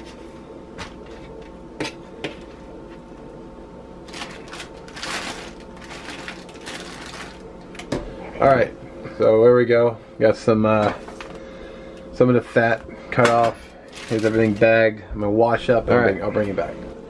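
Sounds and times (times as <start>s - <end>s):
plastic bag crinkling: 4.0s - 7.9s, 13.7s - 14.8s.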